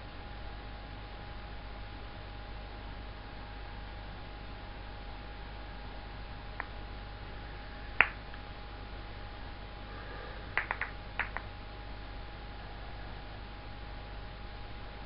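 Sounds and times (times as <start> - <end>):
acrylic balls clicking together: 10.6 - 11.5.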